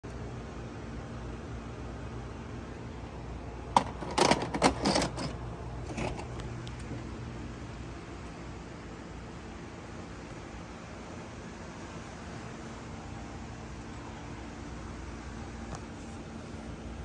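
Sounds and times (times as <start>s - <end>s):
steady low hum: 0.0s - 17.0s
cassette loading clicks and clunks: 3.7s - 6.9s.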